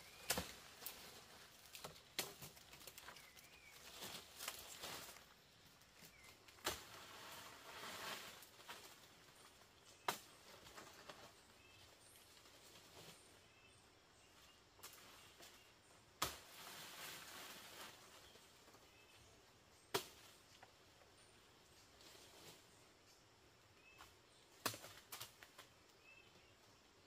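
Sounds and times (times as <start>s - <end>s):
rustling and scraping: 0.0s - 13.8s, 16.3s - 19.2s, 20.1s - 23.1s.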